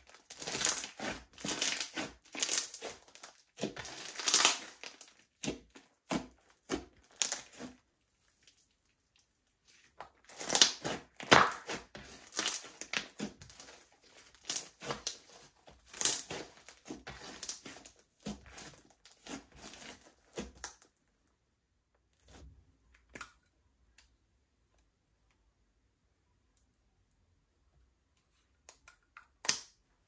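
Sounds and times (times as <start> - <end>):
slime squished by hand: 0.1 - 8.9, 9.8 - 20.8.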